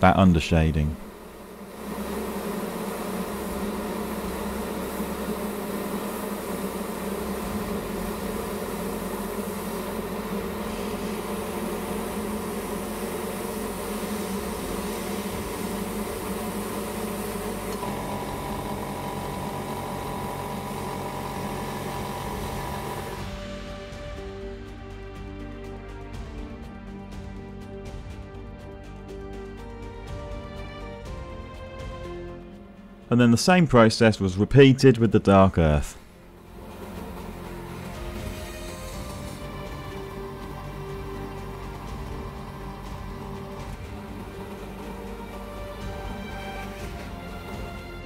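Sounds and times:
higher steady tone: 0.0 - 23.4
compressor humming: 0.0 - 26.2, 32.5 - 48.0
air hissing through airbrush: 1.0 - 24.0, 36.0 - 48.0.

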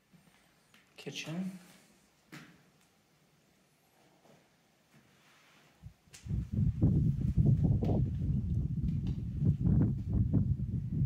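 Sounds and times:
low rumbling on microphone: 5.8 - 11.0.

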